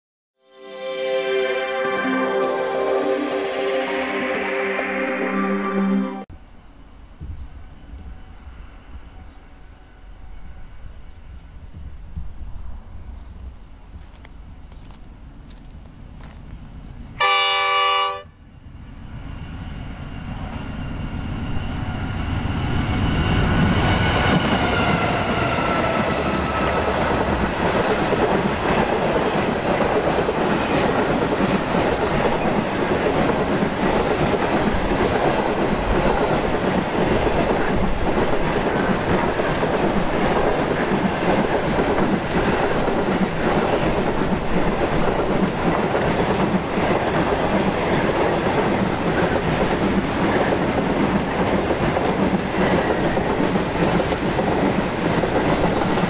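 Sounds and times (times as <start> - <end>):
train rushing past: 0.6 - 13.9, 17.2 - 56.0
locomotive horn blast: 17.2 - 18.4.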